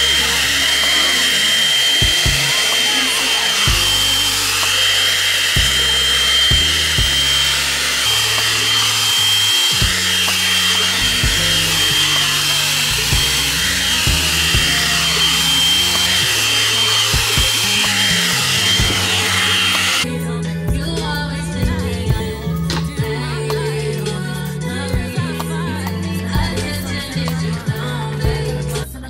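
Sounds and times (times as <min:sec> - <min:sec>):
hair dryer whining: 0:00.0 - 0:20.1
background music with bass: 0:00.0 - 0:29.0.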